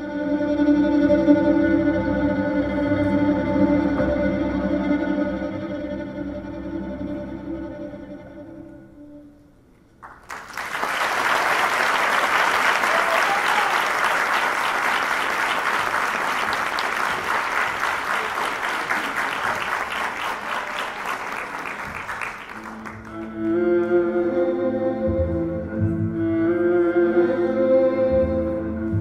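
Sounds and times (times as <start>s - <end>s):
audience applauding: 10.0s - 23.5s
live instrumental music: 21.5s - 29.0s.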